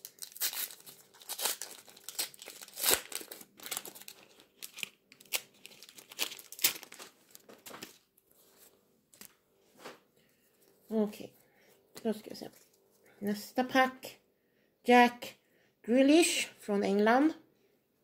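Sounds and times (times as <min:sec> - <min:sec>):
foil pack tearing and crinkling: 0:00.0 - 0:08.0.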